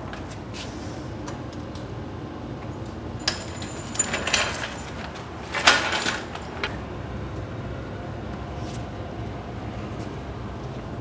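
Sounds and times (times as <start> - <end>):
low steady hum: 0.0 - 11.0
metal parts clinking: 3.2 - 6.8.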